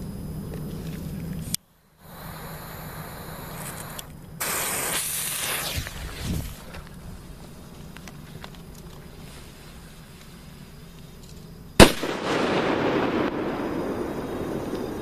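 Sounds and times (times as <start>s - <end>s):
firework bang with echo: 11.8s - 15.0s.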